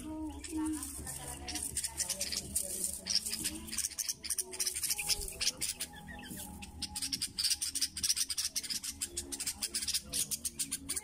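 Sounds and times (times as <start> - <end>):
bird calling with high chips: 0.0 - 11.0.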